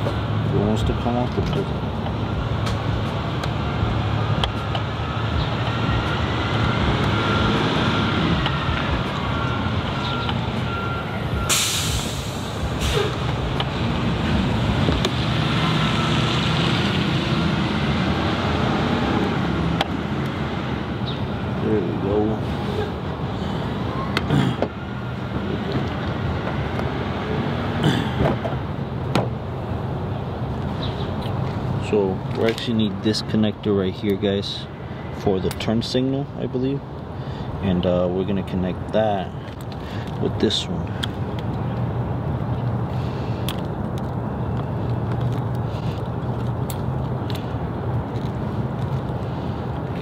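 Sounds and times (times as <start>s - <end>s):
truck engine rumbling: 0.0s - 50.0s
air brake hiss: 11.5s - 13.2s.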